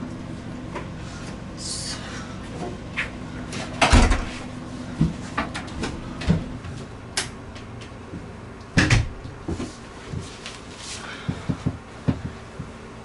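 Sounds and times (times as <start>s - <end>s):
door shutting with heavy thud: 3.8s - 4.4s, 8.8s - 9.2s.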